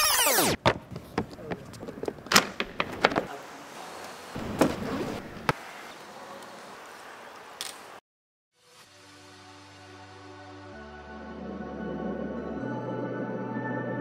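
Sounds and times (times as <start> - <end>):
equipment knocks and clatters: 0.6 - 3.3.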